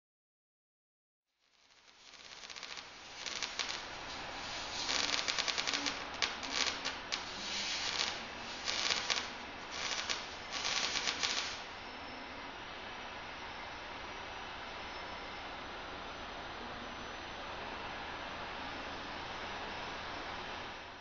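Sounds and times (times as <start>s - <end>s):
welding arc crackling: 1.3s - 11.8s
faint steady hiss: 1.3s - 21.0s.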